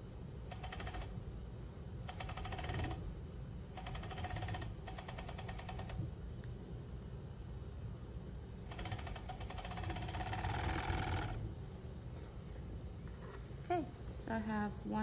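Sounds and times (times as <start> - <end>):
sewing machine stitching: 2.1 - 3.0, 3.8 - 6.0, 8.7 - 11.4.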